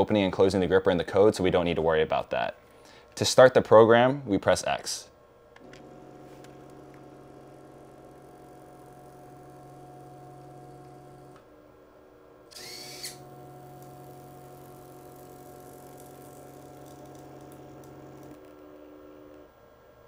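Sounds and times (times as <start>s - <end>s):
stepper motors whining: 12.5s - 18.5s.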